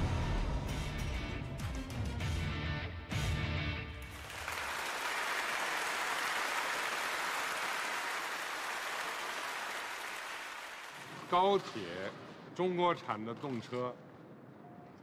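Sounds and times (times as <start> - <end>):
music: 0.0 - 4.6
crowd clapping: 4.0 - 11.6.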